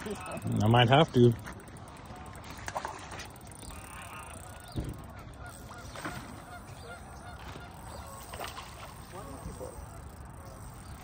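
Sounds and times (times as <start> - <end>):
geese honking: 3.7 - 8.4.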